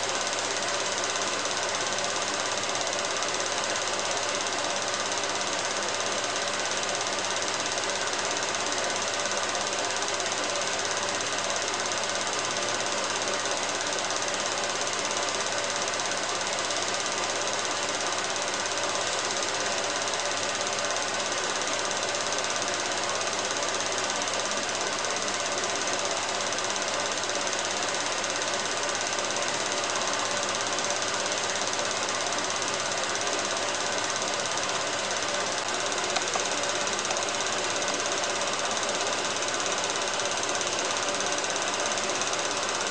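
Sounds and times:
film projector clatter: 0.0s - 42.9s
projector clicks: 35.5s - 37.5s.

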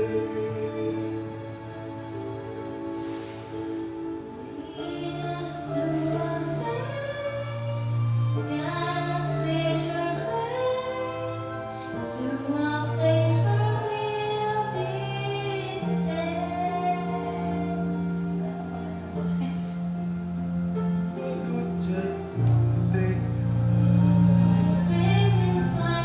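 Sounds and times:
woman singing slow song: 4.4s - 20.3s, 24.0s - 26.0s
backing track with bass notes: 18.4s - 26.0s.

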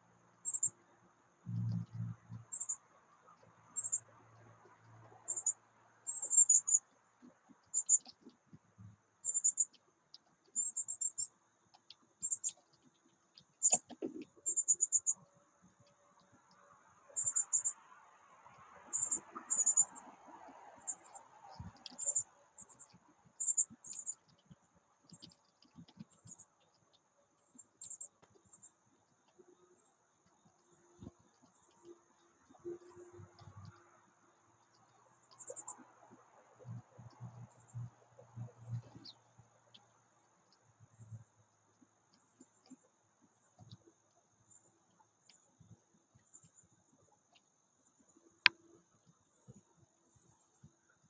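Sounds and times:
insect chirping: 0.1s - 6.9s, 7.6s - 8.2s, 9.2s - 9.8s, 10.5s - 11.3s, 12.2s - 12.7s, 13.6s - 15.4s, 16.5s - 24.3s
high-pitched bird chirps: 0.4s - 0.8s, 2.5s - 2.8s, 3.8s - 4.0s, 5.3s - 6.8s, 7.7s - 8.1s, 9.2s - 9.7s, 13.6s - 15.2s, 17.2s - 17.8s, 18.9s - 20.0s, 21.8s - 24.2s
birds tapping and scratching: 1.5s - 5.5s, 6.1s - 17.7s, 18.4s - 34.0s.

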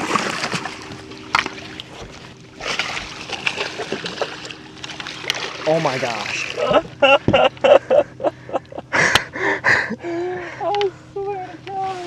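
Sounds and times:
faint steady hum: 0.0s - 12.0s
water splashing and sloshing: 0.0s - 12.0s
fish thrashing in net: 1.4s - 6.7s.

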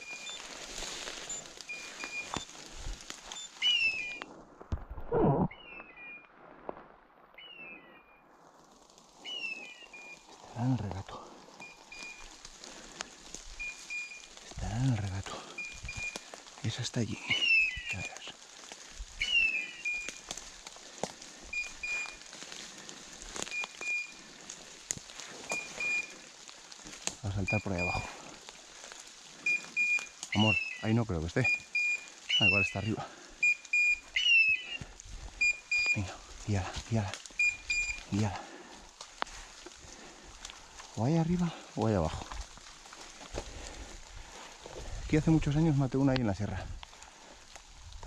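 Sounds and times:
footsteps on dry leaves: 0.0s - 4.8s, 5.7s - 48.0s
falling chirp: 1.2s - 2.5s, 3.3s - 4.2s, 5.1s - 6.3s, 7.4s - 8.2s, 15.5s - 16.2s, 19.2s - 20.2s, 25.5s - 26.1s, 29.5s - 34.8s
short high beeps: 1.2s - 2.5s, 25.5s - 26.1s, 29.5s - 30.8s, 33.4s - 34.7s, 35.4s - 36.0s, 37.4s - 38.1s.

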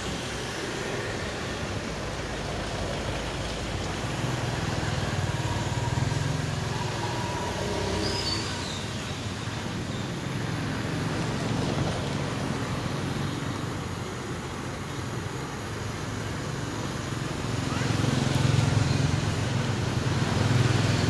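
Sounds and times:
road traffic noise: 0.0s - 21.0s
faint high squeal: 4.7s - 9.2s.

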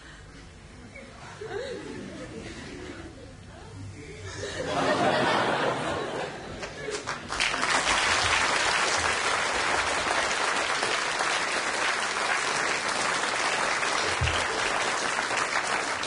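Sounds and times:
large audience applauding: 6.6s - 16.0s.

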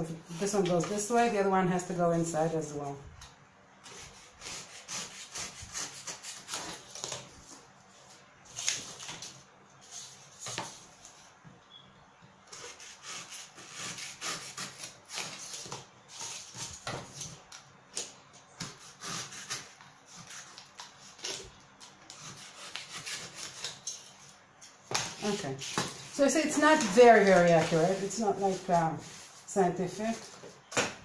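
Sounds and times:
utility knife cutting cardboard: 3.9s - 7.2s, 12.5s - 17.2s, 18.6s - 21.4s, 22.1s - 23.8s.

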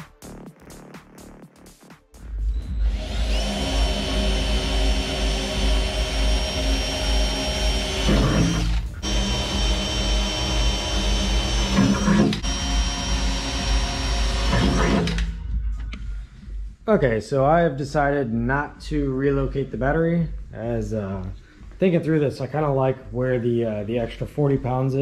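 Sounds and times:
cordless drill whining: 2.5s - 15.4s.

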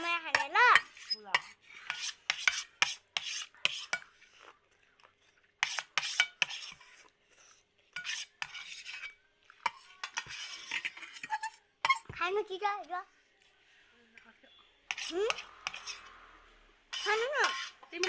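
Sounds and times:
cutlery scraping metal plates: 0.0s - 4.1s, 5.6s - 6.9s, 7.9s - 12.1s, 14.9s - 16.2s, 16.9s - 18.0s
slurping and chewing noodles: 3.0s - 8.4s.

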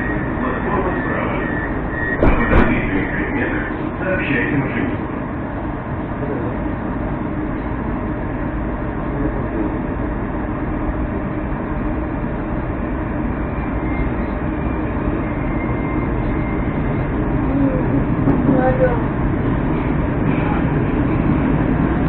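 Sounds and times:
faint high whine: 0.0s - 5.1s
metro train rumble: 0.0s - 22.0s.

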